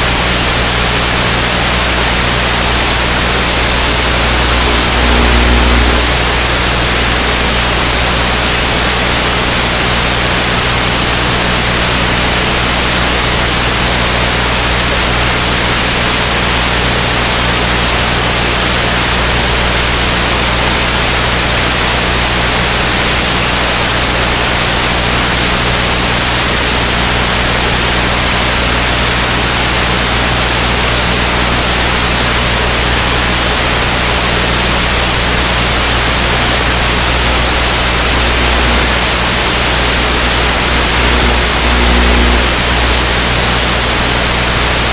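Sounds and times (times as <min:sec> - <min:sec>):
static hiss: 0:00.0 - 0:44.9
low hum: 0:01.8 - 0:10.2, 0:35.5 - 0:44.9.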